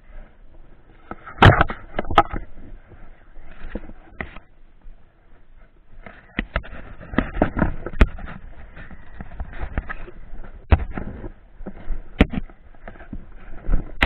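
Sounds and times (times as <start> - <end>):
dirt bike knocks and rattles: 1.1 - 2.6, 6.0 - 14.0.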